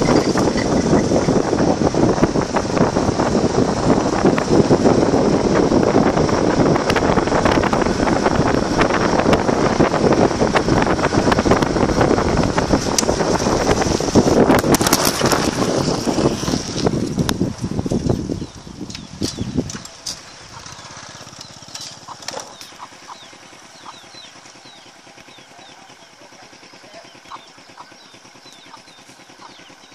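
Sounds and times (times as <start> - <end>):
wind rushing over microphone: 0.0 - 24.8
rattles and knocks from bumps: 18.8 - 22.8.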